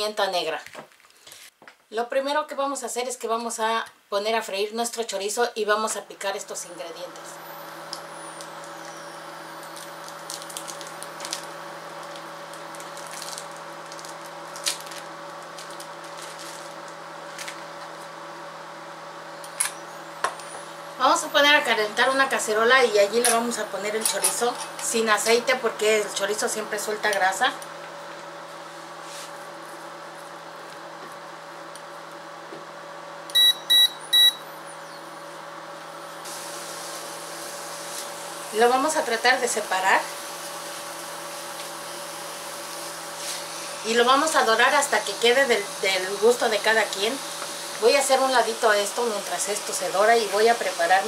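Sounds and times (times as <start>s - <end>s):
steady electrical hum: 0.0s - 51.0s
cooktop touch control beeps: 33.3s - 34.5s.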